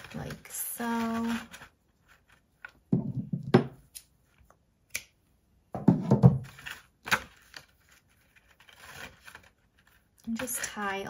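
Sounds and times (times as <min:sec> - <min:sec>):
paper rustling: 0:00.0 - 0:02.8, 0:06.4 - 0:10.5.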